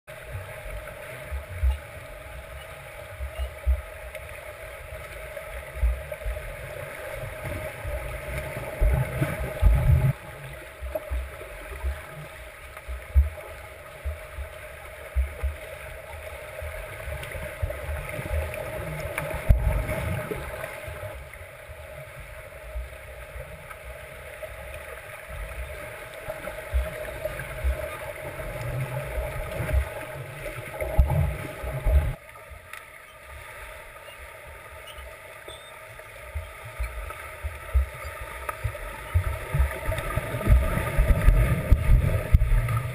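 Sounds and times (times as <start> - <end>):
muffled underwater wash: 0.1 - 42.9
swimmers' thumps and sloshes: 36.3 - 42.9.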